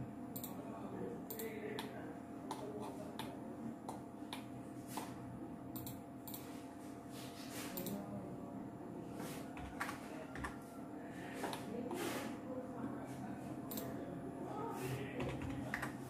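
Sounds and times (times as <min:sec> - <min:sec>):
computer mouse clicking: 0:00.4 - 0:00.6, 0:01.3 - 0:01.9, 0:05.8 - 0:06.4, 0:07.8 - 0:08.0, 0:13.7 - 0:13.9.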